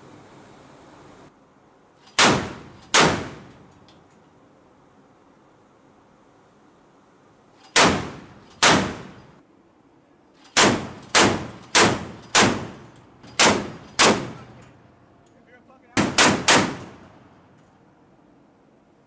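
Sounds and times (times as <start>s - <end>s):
naval gun firing shots with echo: 2.2s - 3.5s, 7.8s - 9.2s, 10.6s - 12.8s, 13.4s - 14.5s, 16.0s - 17.0s.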